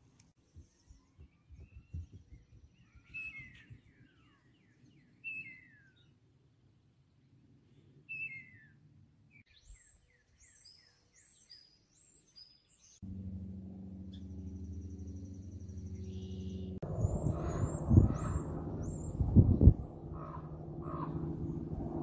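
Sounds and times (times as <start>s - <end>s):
small birds chirping: 0.3s - 6.2s, 7.8s - 21.8s
propeller plane engine drone: 13.0s - 22.0s
small helicopter noise: 13.0s - 22.0s.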